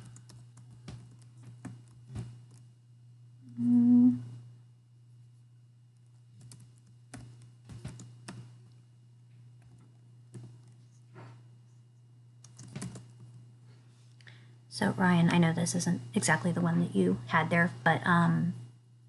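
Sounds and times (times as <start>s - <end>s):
steady low hum: 0.0s - 19.0s
keyboard key clicks: 12.4s - 13.1s.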